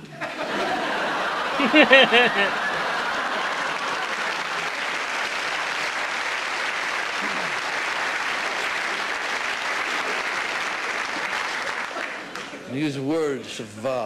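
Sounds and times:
audience applauding: 0:00.4 - 0:12.6.

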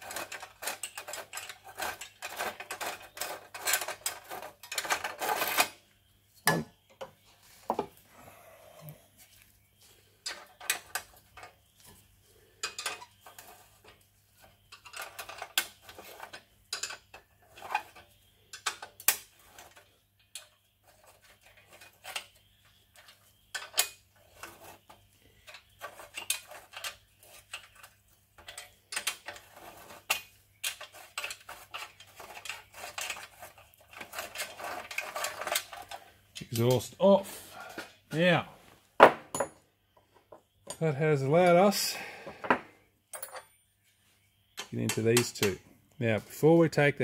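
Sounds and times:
metal bolts clicking and clinking: 0:12.6 - 0:14.0, 0:14.7 - 0:22.4, 0:25.4 - 0:36.9, 0:43.1 - 0:43.6.

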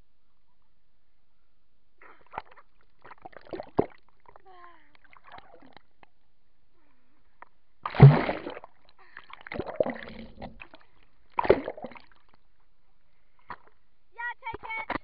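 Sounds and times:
water splashing: 0:07.9 - 0:12.4.

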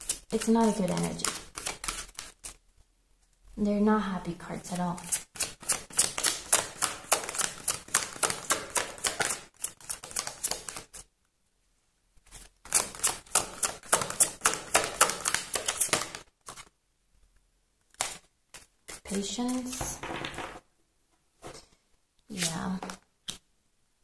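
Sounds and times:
cards being shuffled: 0:00.0 - 0:02.6, 0:05.0 - 0:11.1, 0:12.3 - 0:16.7, 0:17.9 - 0:20.6, 0:22.3 - 0:23.4
cards slapping: 0:00.0 - 0:02.6, 0:05.1 - 0:11.0, 0:12.7 - 0:16.7.

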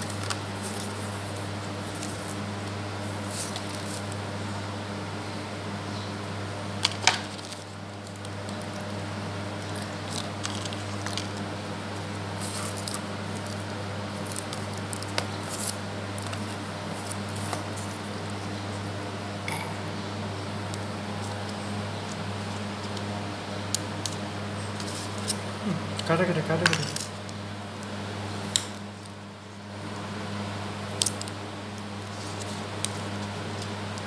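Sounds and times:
steady low hum: 0:00.0 - 0:34.0
packaging clicks and rustles: 0:09.6 - 0:11.4.

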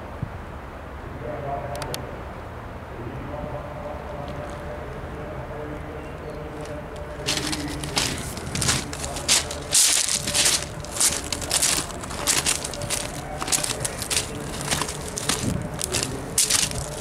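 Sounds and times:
steady low hum: 0:02.2 - 0:17.0
footsteps crunching on gravel: 0:06.6 - 0:17.0.

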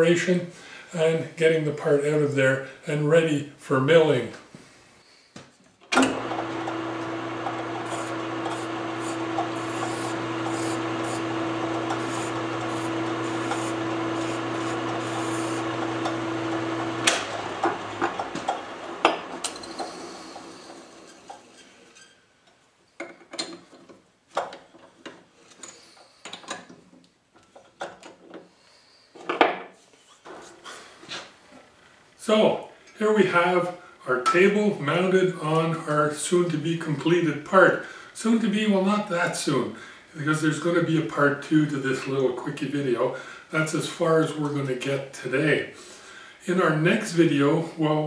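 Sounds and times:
metal lathe humming: 0:06.0 - 0:21.4
hand file rasping on metal: 0:07.8 - 0:16.2
clicks and knocks of handling: 0:23.0 - 0:28.5.

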